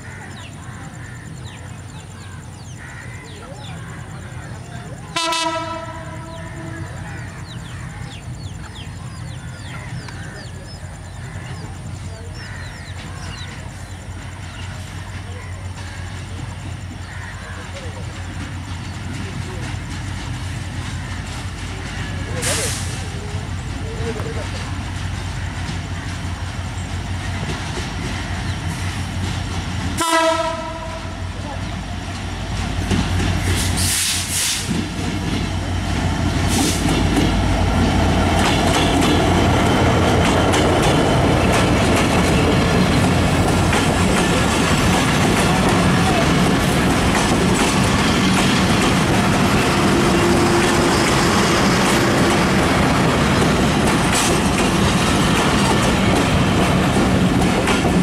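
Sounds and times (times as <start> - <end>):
locomotive engine drone: 0.0 - 58.0
train horn blast: 5.2 - 7.0, 30.0 - 31.3
wheel clatter on rails: 6.9 - 29.9, 32.1 - 58.0.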